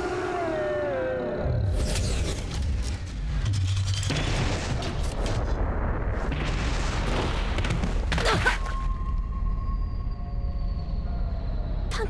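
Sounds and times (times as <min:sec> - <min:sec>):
explosion blast with rumble: 0:04.1 - 0:08.2.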